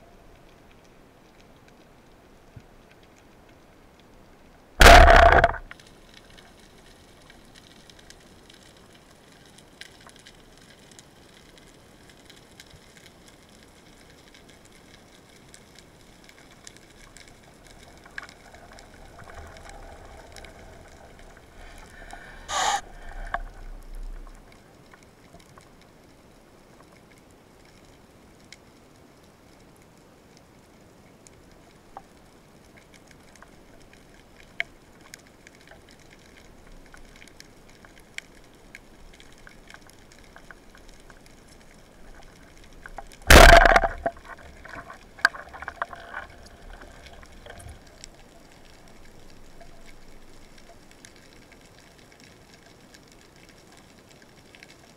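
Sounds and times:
faint underwater hiss: 0.0s - 29.6s, 30.2s - 54.9s
underwater bubbling: 0.0s - 29.6s, 30.7s - 54.9s
sharp knock: 4.8s - 5.6s, 43.3s - 44.0s.

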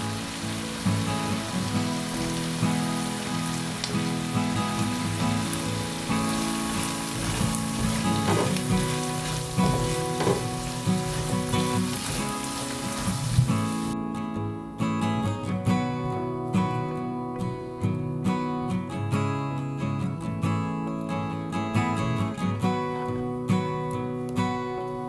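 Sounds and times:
onions sizzling in oil: 0.0s - 14.0s
soft guitar music: 0.0s - 25.0s
spatula scraping pan: 6.1s - 13.5s.

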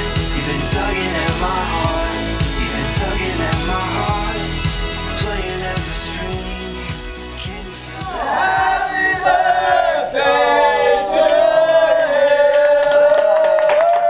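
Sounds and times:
men cheering in unison: 8.0s - 14.0s
hand claps: 12.2s - 14.0s.

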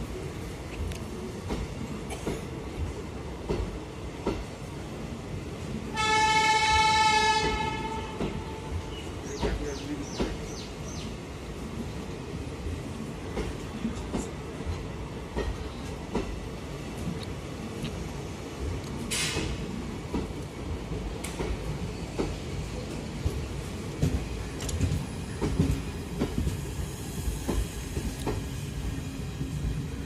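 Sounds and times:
train coaches rumbling past: 0.0s - 30.0s.

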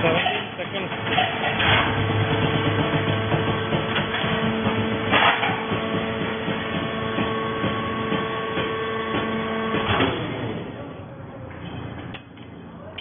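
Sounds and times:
hydraulic unit hum and whine: 0.0s - 13.0s
sharp metal clank: 5.1s - 5.7s.

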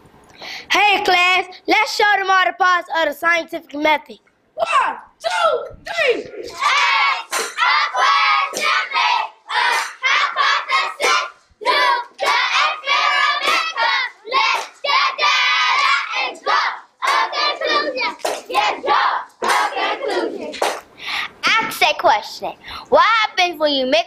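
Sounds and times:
children chanting together: 5.9s - 20.8s
hand claps: 7.3s - 7.7s, 8.5s - 8.8s, 9.7s - 10.0s, 11.0s - 11.3s, 12.2s - 13.8s, 14.5s - 14.9s, 17.0s - 17.5s, 18.1s - 18.6s, 19.4s - 19.8s, 20.5s - 20.9s.

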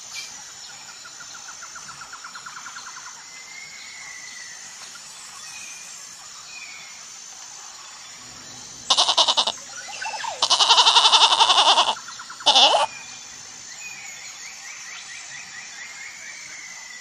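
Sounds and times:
goat kid bleating: 8.9s - 12.9s.

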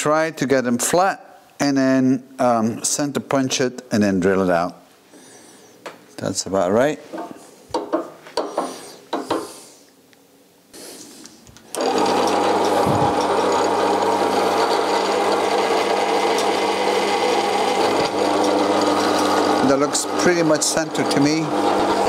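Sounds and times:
drill press motor running: 11.7s - 22.0s.

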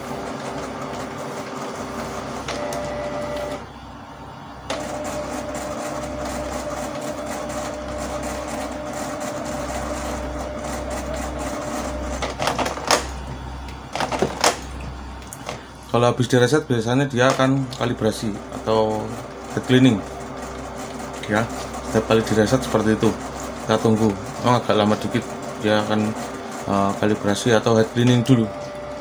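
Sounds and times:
printer sharp clacks: 0.0s - 3.6s, 4.7s - 15.6s, 17.2s - 29.0s
inkjet printer motors whining: 0.0s - 29.0s.

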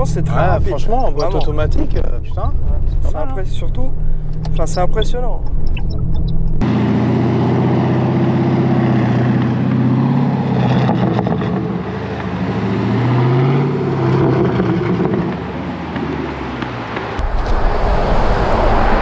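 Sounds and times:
car engine idling: 0.0s - 10.4s.

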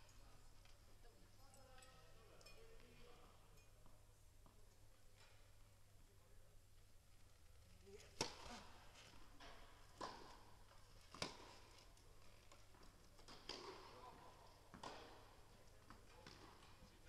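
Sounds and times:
tennis racket hits and bounces: 8.0s - 17.0s.

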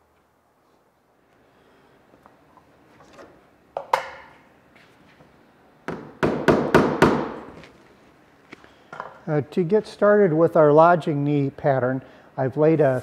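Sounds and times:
hammer striking plywood: 5.9s - 7.5s.

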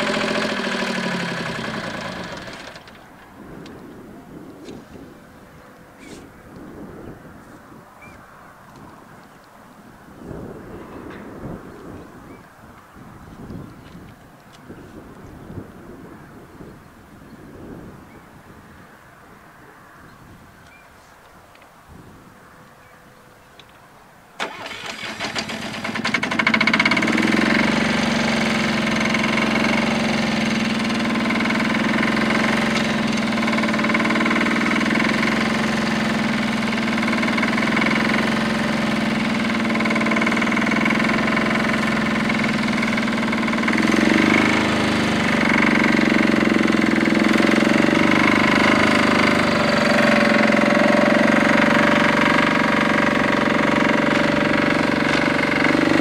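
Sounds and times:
small tractor diesel engine running: 0.0s - 4.1s, 24.4s - 56.0s.

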